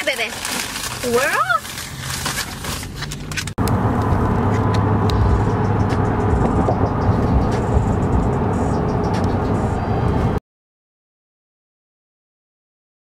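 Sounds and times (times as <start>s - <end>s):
car road and engine noise: 0.0s - 10.4s.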